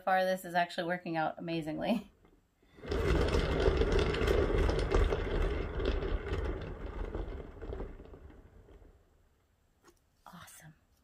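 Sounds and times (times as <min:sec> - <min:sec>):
turntable rumbling with rattles: 0:02.2 - 0:09.5.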